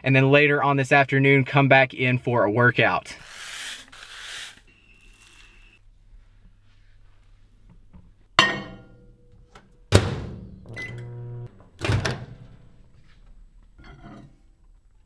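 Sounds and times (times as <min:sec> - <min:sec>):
microwave oven humming: 0:10.7 - 0:11.6.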